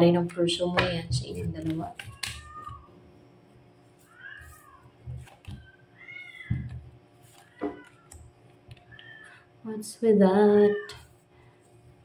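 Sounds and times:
cat meowing: 2.1 - 2.9, 4.0 - 4.9, 5.6 - 6.7.

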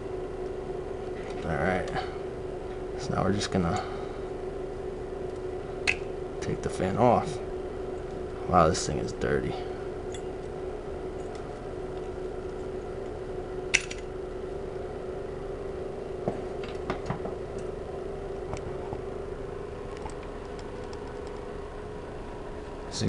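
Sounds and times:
low background hum: 0.0 - 23.0
plastic fan clicks and knocks: 16.2 - 17.4.

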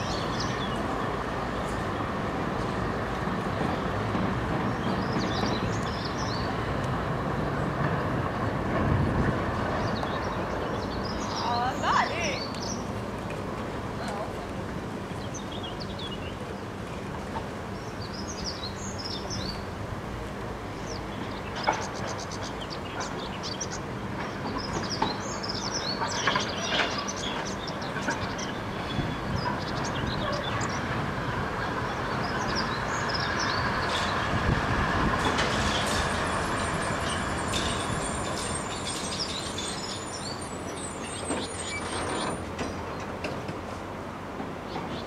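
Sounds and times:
tram rumbling over rails: 0.0 - 45.0
faint high brake squeal: 35.7 - 42.5.

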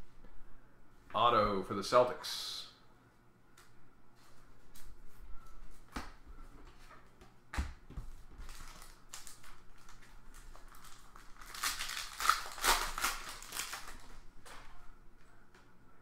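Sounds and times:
foil pack rustling: 8.4 - 14.2
foil wrapper ripping: 8.4 - 14.2.

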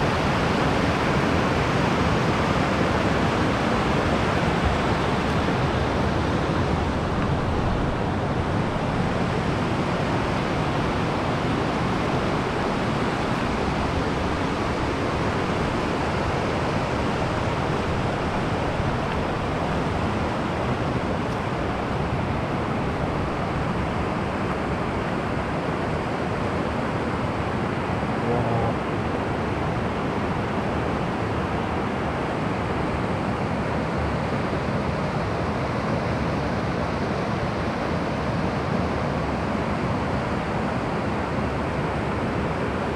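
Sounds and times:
water rushing over rapids: 0.0 - 42.9.

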